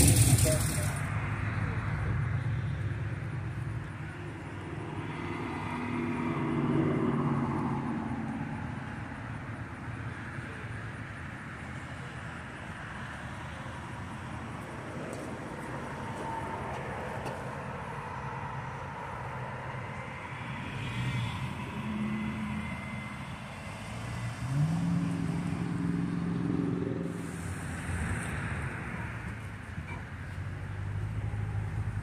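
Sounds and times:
car engine accelerating: 0:00.0 - 0:01.8
road noise: 0:00.0 - 0:32.0.

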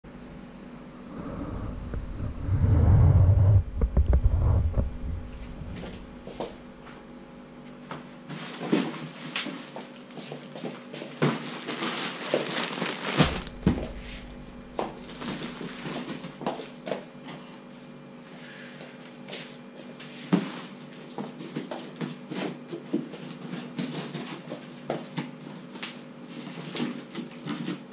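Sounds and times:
low rumble: 0:00.1 - 0:06.8, 0:13.1 - 0:16.3
cardboard box scraping and knocking: 0:01.5 - 0:06.5
plastic-wrapped parcel rustling: 0:08.0 - 0:17.1, 0:19.4 - 0:27.9.

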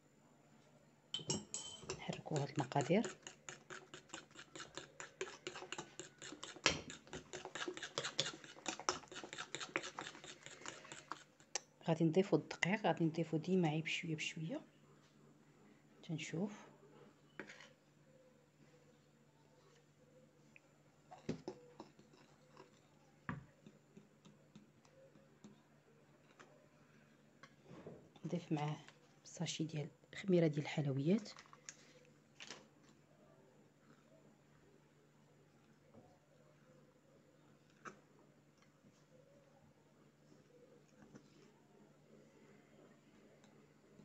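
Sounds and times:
metal spoon scraping a bowl: 0:01.4 - 0:11.4.

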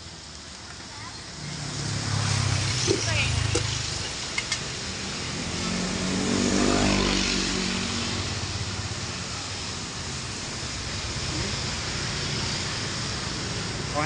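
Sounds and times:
steady hiss: 0:00.0 - 0:14.0
motorbike engine passing: 0:01.5 - 0:04.0, 0:05.1 - 0:08.8.

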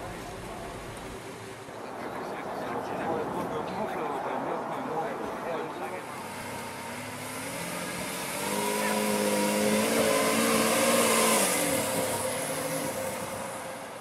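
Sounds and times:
sports car engine driving past: 0:06.0 - 0:14.0.

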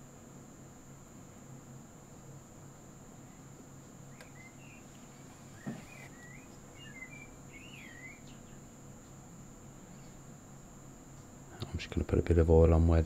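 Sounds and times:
bird song warbling chirps: 0:04.1 - 0:08.8.

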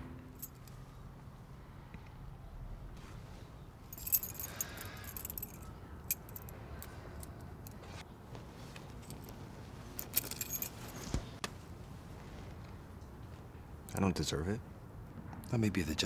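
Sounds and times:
car keys jingling: 0:00.4 - 0:00.8, 0:03.8 - 0:07.8, 0:08.9 - 0:11.0.

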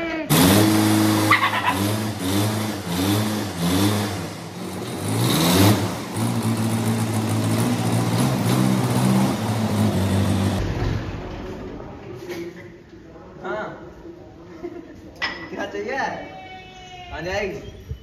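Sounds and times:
tractor diesel engine revving: 0:00.3 - 0:11.8.

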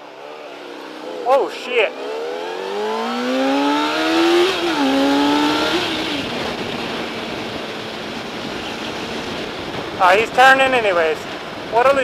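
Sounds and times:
motorcycle engine accelerating: 0:00.4 - 0:09.9
wind rushing over microphone: 0:03.9 - 0:12.0.

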